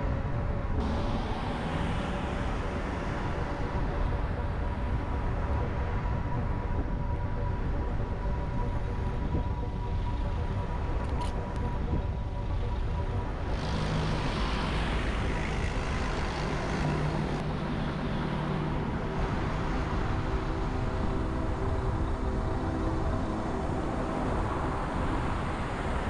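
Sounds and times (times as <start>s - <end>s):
road traffic rumble: 10.2s - 26.0s.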